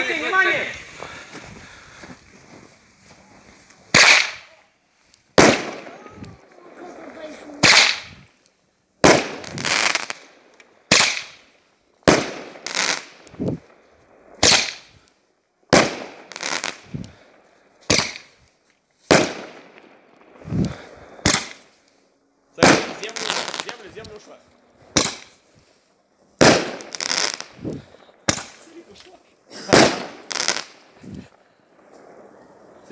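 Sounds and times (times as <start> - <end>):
fireworks bangs: 3.9 - 4.6, 5.3 - 8.3, 9.0 - 15.0, 15.7 - 18.4, 19.1 - 21.7, 22.6 - 25.5, 26.4 - 32.9.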